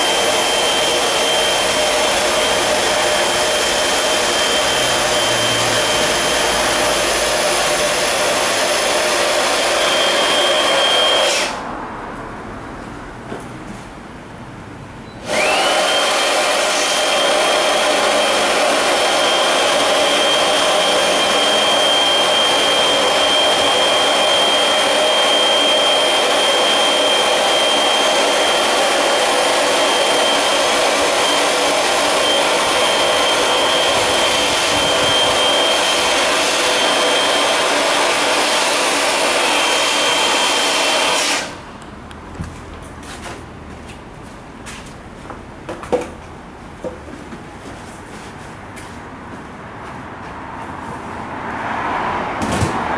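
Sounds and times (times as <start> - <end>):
electric air pump whining: 0.0 - 11.6, 15.2 - 41.8.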